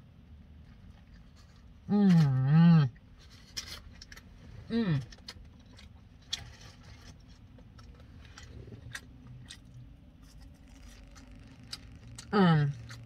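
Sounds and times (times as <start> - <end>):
low steady hum: 0.0 - 13.0
person chewing: 3.5 - 13.0.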